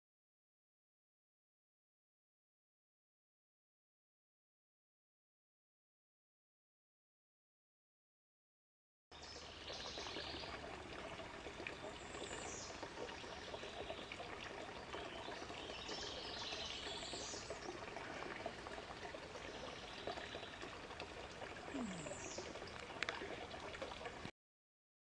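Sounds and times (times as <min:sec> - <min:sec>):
water trickling into a pond: 0:09.1 - 0:24.3.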